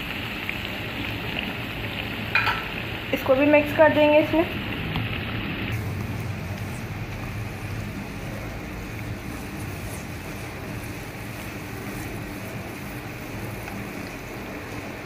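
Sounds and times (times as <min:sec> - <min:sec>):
meat sizzling in a pan: 0:00.0 - 0:15.0
spatula stirring in a pan: 0:04.8 - 0:15.0.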